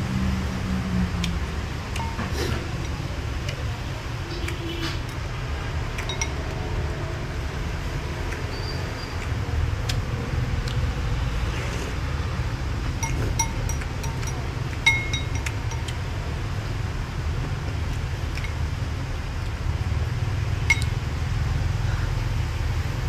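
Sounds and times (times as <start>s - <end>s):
spoon clinking ceramic bowl: 6.0s - 6.4s, 13.0s - 15.9s, 20.7s - 20.9s.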